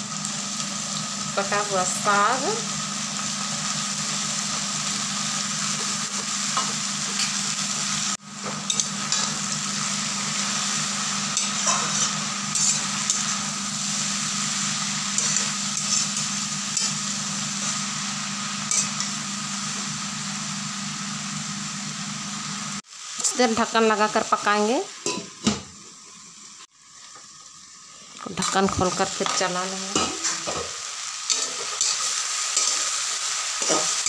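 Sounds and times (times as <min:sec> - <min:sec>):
vegetables sizzling in oil: 0:00.0 - 0:34.0
metal spatula scraping pan: 0:11.4 - 0:13.4, 0:31.3 - 0:33.0, 0:33.6 - 0:34.0.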